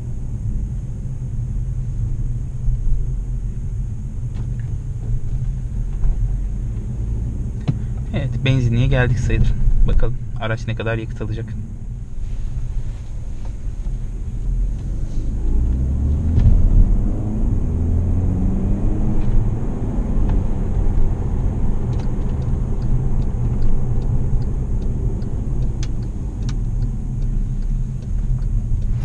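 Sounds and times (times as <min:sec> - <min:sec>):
car engine and road rumble: 0:00.0 - 0:29.0
turn signal ticking: 0:04.2 - 0:12.1, 0:13.1 - 0:17.6, 0:19.1 - 0:29.0.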